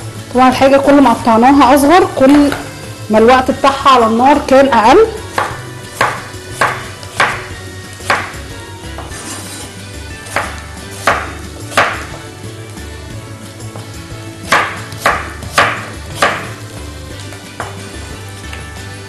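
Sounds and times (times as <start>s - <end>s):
knife knocking on wooden board: 5.4s - 7.5s, 8.1s - 9.3s, 10.3s - 12.2s.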